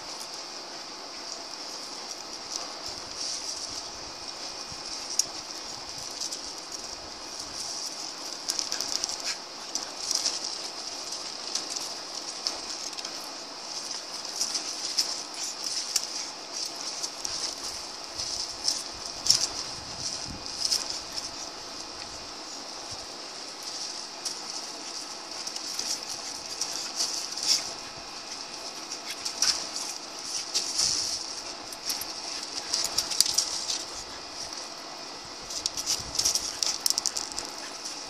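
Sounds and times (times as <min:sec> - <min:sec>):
steady high hiss: 0:00.0 - 0:38.0
dog claws clicking on concrete: 0:35.6 - 0:37.7.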